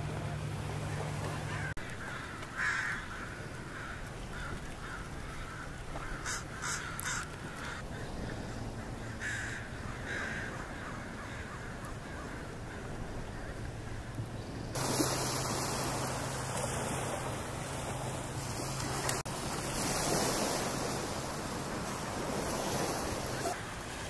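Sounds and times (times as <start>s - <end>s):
crows cawing: 1.4s - 14.0s.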